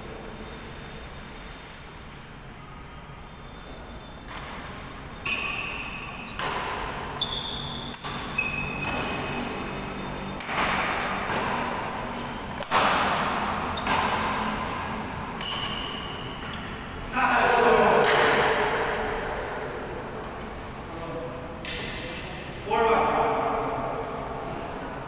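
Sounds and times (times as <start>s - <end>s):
shoes squeaking on court floor: 3.5s - 17.6s
rackets striking shuttlecock: 4.3s - 16.7s, 18.0s - 19.2s.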